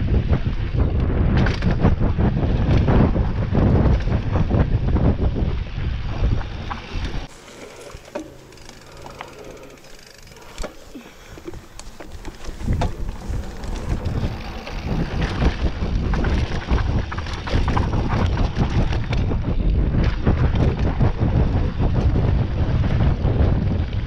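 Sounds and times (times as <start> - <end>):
bike rattling over bumps: 0.0 - 24.0
wind buffeting microphone: 0.0 - 24.0
tyres crunching on dirt and rock: 7.2 - 18.7.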